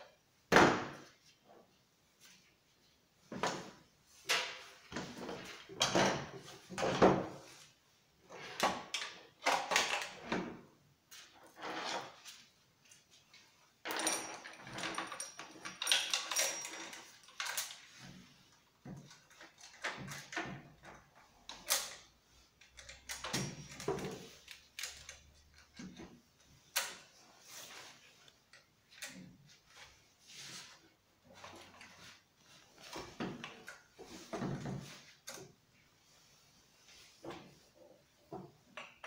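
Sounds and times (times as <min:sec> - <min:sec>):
metal chain clinking and rattling: 0:13.8 - 0:18.2, 0:19.1 - 0:26.0.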